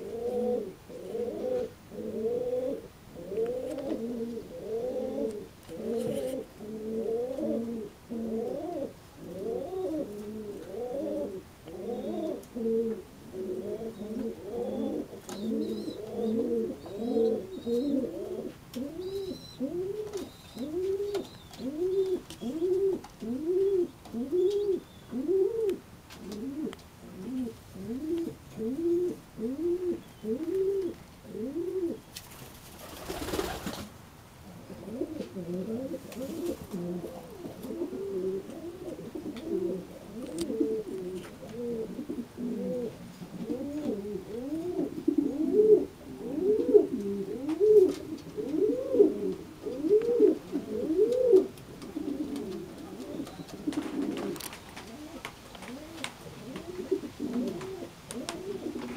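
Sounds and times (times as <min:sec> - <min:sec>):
pigeons cooing: 0:00.0 - 0:32.0, 0:34.6 - 0:58.9
rustling noise: 0:05.2 - 0:06.5, 0:35.0 - 0:41.9, 0:46.9 - 0:58.9.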